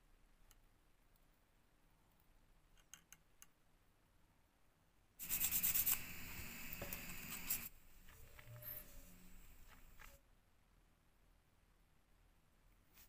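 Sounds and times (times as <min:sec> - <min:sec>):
abrasive pad scratchy rubbing: 0:05.2 - 0:10.2.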